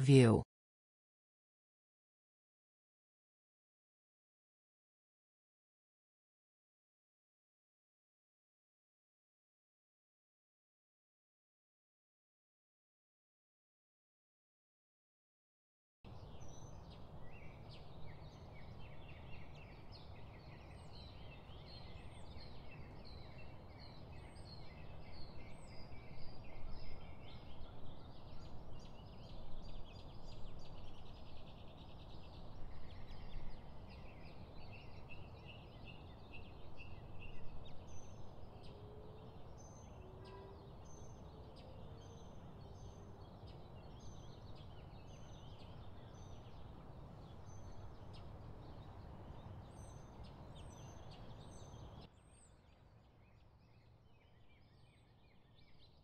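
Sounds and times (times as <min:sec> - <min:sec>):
wild birds chirping and trilling: 0:16.1 - 0:56.0.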